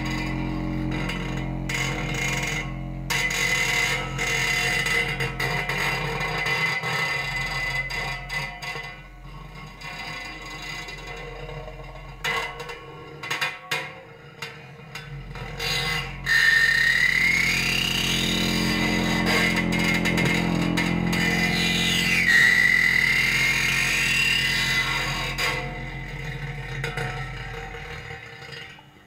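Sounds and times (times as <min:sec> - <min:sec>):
high squealing whistle-like tone: 0:00.0 - 0:06.2, 0:15.5 - 0:28.5
sustained low drone: 0:00.0 - 0:07.6, 0:14.9 - 0:28.8.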